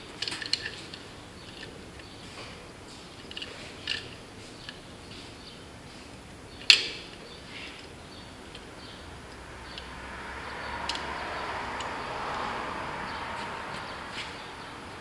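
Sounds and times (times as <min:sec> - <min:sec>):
broad rising noise: 0:09.0 - 0:15.0.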